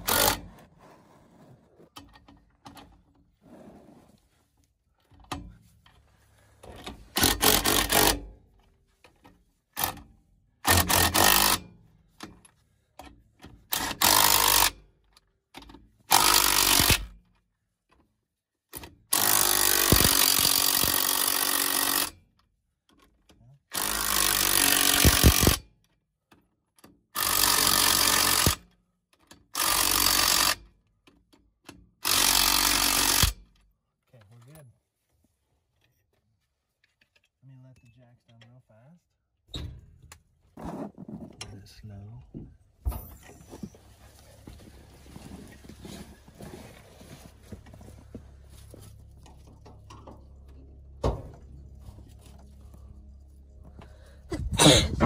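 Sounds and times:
impact wrench bursts: 0:07.1 - 0:08.2, 0:10.6 - 0:11.7, 0:13.7 - 0:14.8, 0:16.1 - 0:17.1, 0:19.1 - 0:22.2, 0:23.7 - 0:25.6, 0:27.2 - 0:28.7, 0:29.6 - 0:30.6, 0:32.0 - 0:33.4.

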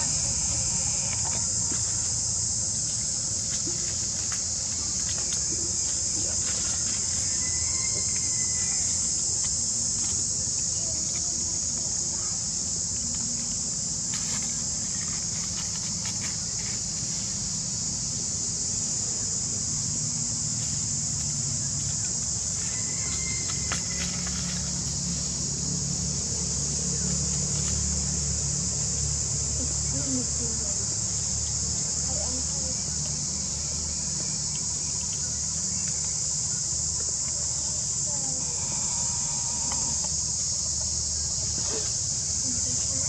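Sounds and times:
high-pitched insect chorus: 0:00.0 - 0:43.0.

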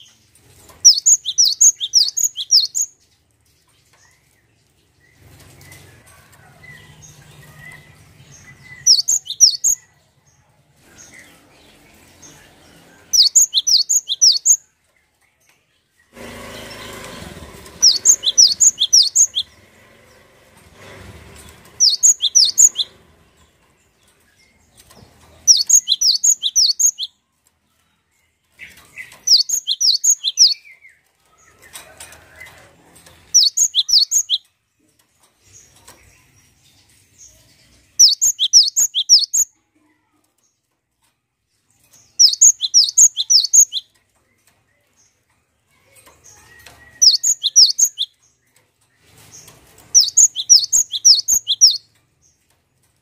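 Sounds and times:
rustling noise: 0:00.0 - 0:09.8, 0:16.1 - 0:27.7, 0:47.9 - 0:53.0
bird singing high chirps: 0:00.8 - 0:03.1, 0:06.8 - 0:10.0, 0:13.0 - 0:14.7, 0:17.8 - 0:19.6, 0:21.8 - 0:23.2, 0:25.4 - 0:27.2, 0:28.7 - 0:31.0, 0:33.3 - 0:34.5, 0:37.9 - 0:39.6, 0:42.1 - 0:44.0, 0:46.3 - 0:48.4, 0:49.9 - 0:51.9.

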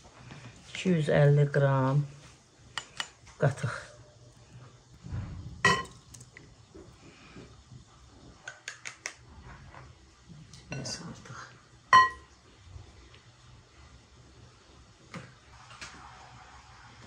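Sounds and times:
utensil clinking against bowl: 0:05.7 - 0:06.2.

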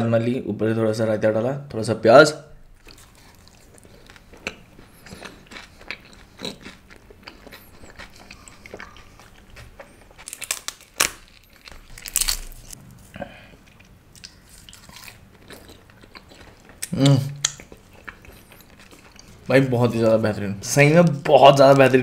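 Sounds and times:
wet crunchy chewing: 0:02.8 - 0:19.5.

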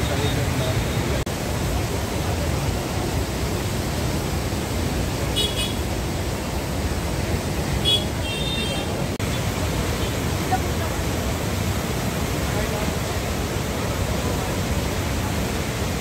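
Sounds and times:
rushing floodwater: 0:00.0 - 0:16.0
vehicle horn toots: 0:05.4 - 0:05.8.

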